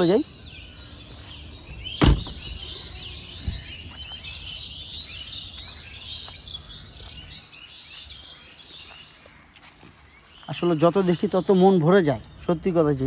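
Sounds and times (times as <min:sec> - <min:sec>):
small birds chirping: 0:00.0 - 0:13.0
car door shutting: 0:02.0 - 0:02.5
soft thump: 0:02.0 - 0:02.5.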